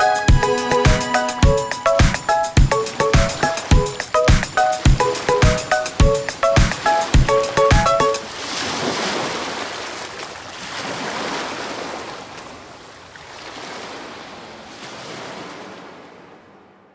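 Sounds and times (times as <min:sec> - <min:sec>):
music: 0:00.0 - 0:08.2
sea waves washing onto beach: 0:00.7 - 0:16.4.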